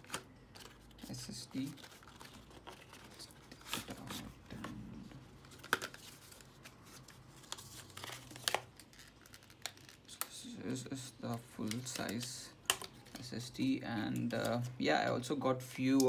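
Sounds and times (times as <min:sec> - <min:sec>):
cardboard and plastic crinkling: 0:00.0 - 0:10.3.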